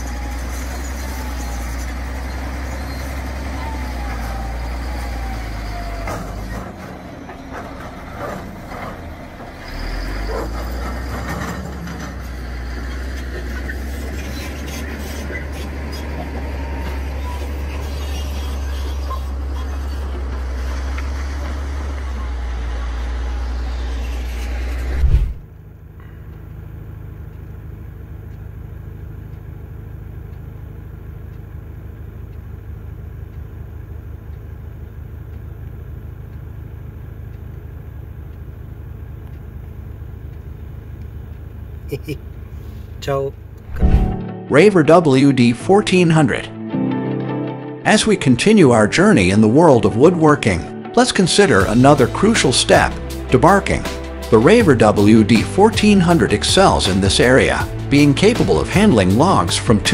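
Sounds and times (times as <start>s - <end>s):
bulldozer diesel engine under load: 0.0s - 46.5s, 48.2s - 59.9s
truck diesel engine running: 0.0s - 46.6s, 47.9s - 59.9s
loud thump: 24.9s - 25.5s, 43.7s - 44.3s.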